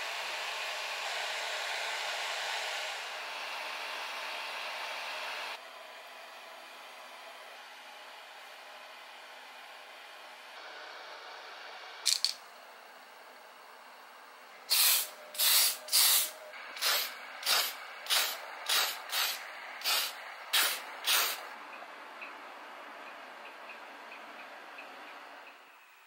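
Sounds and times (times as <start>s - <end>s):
spray paint can hissing: 14.7s - 21.5s.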